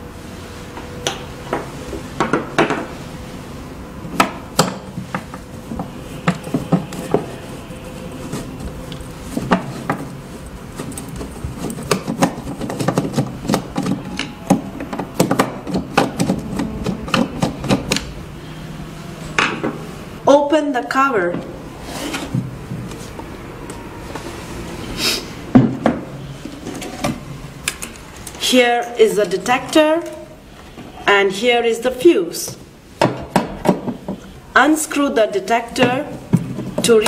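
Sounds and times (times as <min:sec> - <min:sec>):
screwdriver scraping on metal plate: 0:05.0 - 0:18.1.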